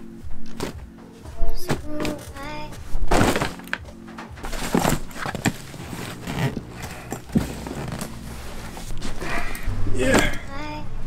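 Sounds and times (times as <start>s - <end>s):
background music: 0.0s - 11.0s
dull thumps of suitcase packing: 1.6s - 8.3s.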